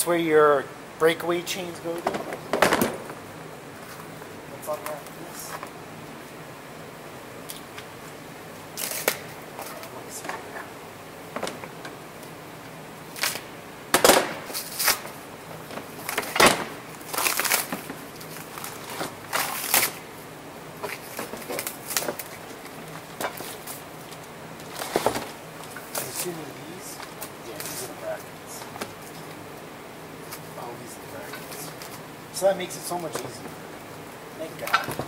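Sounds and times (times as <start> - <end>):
plastic wrap crinkling and tearing: 8.8 - 9.9, 17.0 - 20.0, 20.9 - 23.8.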